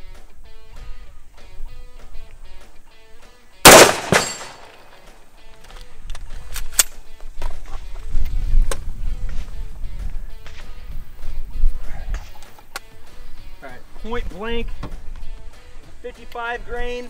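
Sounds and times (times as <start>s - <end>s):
rifle shot: 3.6s - 5.0s
weaker crack: 3.6s - 7.0s.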